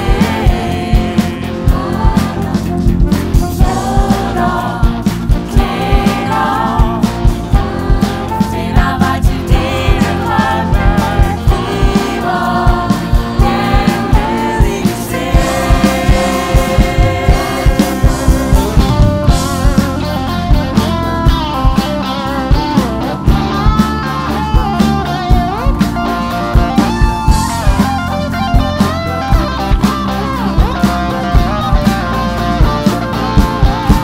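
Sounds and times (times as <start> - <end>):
group of voices singing: 0.0 - 20.6
band playing: 0.0 - 34.0
guitar: 0.0 - 34.0
steady drum beat: 0.0 - 34.0.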